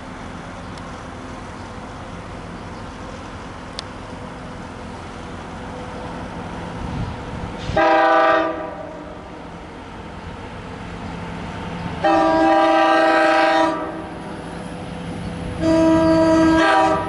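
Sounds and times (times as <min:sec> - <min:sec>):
train rumble: 0:00.0 - 0:17.0
locomotive air horn: 0:07.7 - 0:09.2, 0:12.0 - 0:14.1, 0:15.6 - 0:17.0.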